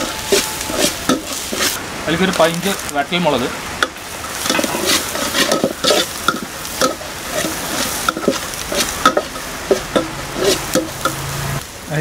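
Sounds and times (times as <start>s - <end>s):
metal spatula scraping pot: 0.0s - 1.8s, 4.3s - 11.3s
onions sizzling in oil: 0.0s - 12.0s.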